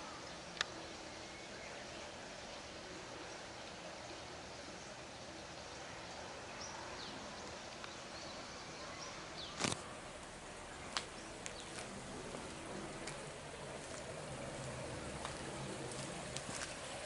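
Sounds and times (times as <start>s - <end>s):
outdoor background noise: 0.0s - 17.0s.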